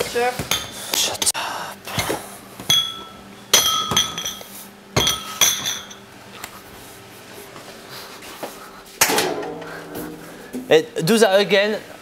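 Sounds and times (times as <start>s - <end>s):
ceramic bowls clinking: 2.7s - 6.0s.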